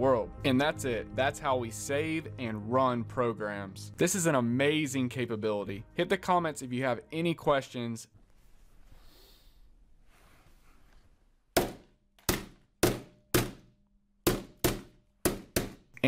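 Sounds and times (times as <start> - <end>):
hammer pounding on a desk: 11.6 - 15.9.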